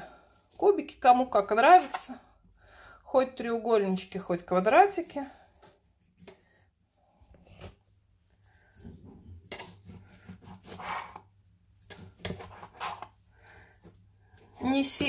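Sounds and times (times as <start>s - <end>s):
knife cutting on a board: 9.5s - 11.2s, 11.9s - 13.1s.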